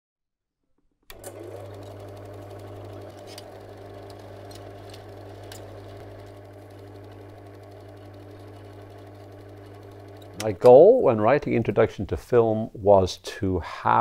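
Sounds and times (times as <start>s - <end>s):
film projector clattering: 1.1s - 10.9s.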